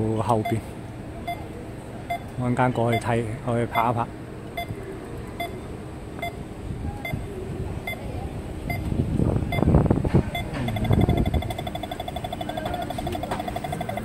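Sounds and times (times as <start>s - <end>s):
road traffic passing: 0.0s - 14.0s
crossing signal beeping: 0.4s - 1.5s, 2.1s - 4.0s, 4.6s - 4.8s, 5.4s - 5.6s, 6.2s - 6.4s, 7.0s - 8.9s, 9.5s - 9.7s, 10.3s - 14.0s.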